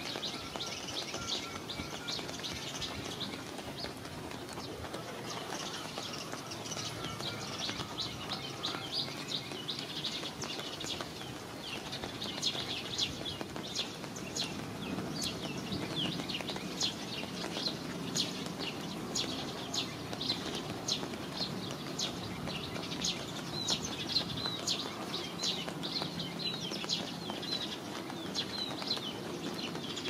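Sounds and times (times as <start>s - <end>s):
rain hiss: 0.0s - 30.0s
small birds chirping: 0.0s - 30.0s.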